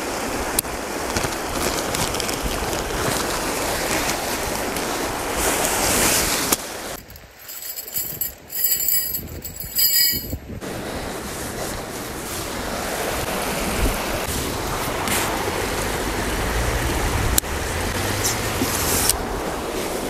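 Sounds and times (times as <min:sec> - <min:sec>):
stream rushing: 0:00.0 - 0:20.0
metal tent poles clinking: 0:07.0 - 0:10.4
wind on microphone: 0:08.0 - 0:10.6.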